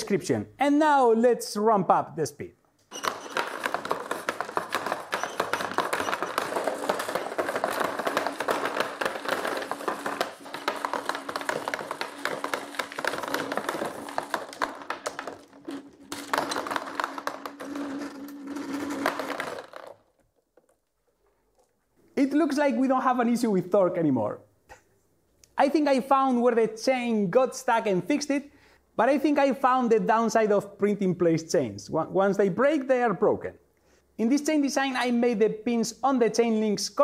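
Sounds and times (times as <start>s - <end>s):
marbles clattering on conveyor: 2.9s - 20.2s.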